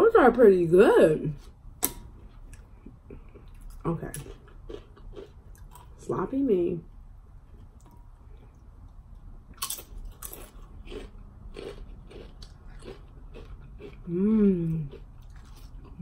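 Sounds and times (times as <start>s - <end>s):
tortilla chips crunching: 3.6s - 6.0s, 9.5s - 14.1s, 14.7s - 16.0s
person humming mmm: 14.1s - 15.0s.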